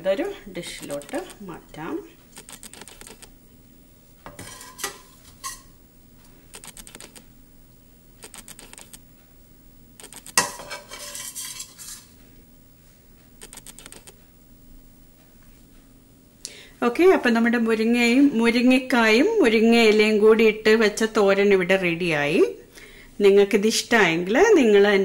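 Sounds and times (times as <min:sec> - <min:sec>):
metal spatula scraping a pan: 0:04.3 - 0:05.7, 0:10.4 - 0:12.1.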